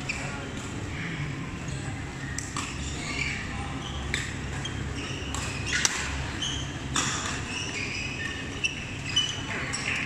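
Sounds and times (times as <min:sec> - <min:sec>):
shoes squeaking on court: 0:00.0 - 0:00.5, 0:02.5 - 0:10.0
sports hall hum: 0:00.0 - 0:10.0
racket hitting shuttlecock: 0:05.2 - 0:06.2.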